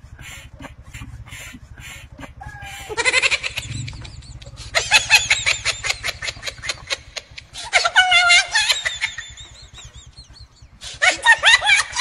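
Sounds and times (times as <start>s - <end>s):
chickens clucking: 0.1s - 7.7s.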